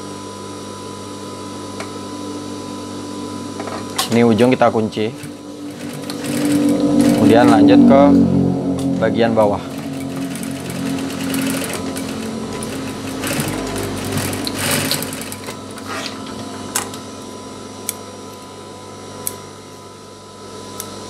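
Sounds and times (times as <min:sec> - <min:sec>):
sewing machine motor humming: 0:05.0 - 0:07.6, 0:09.6 - 0:16.3
sewing machine stitching: 0:05.2 - 0:07.6, 0:09.7 - 0:16.2.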